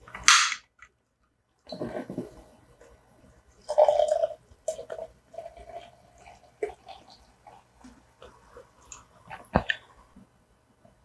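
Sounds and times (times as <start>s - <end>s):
cola pouring and glugging: 1.7s - 2.5s, 3.6s - 9.9s.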